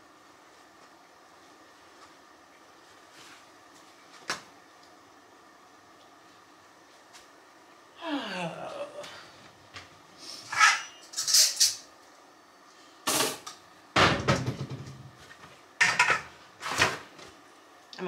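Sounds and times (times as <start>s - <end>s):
dishes and pots clanking: 15.8s - 16.9s.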